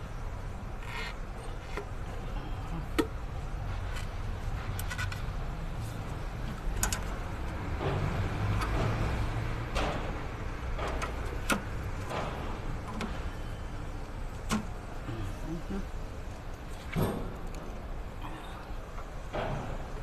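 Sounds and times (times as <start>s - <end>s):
clicks and knocks of tools: 3.9s - 5.3s, 6.4s - 13.3s.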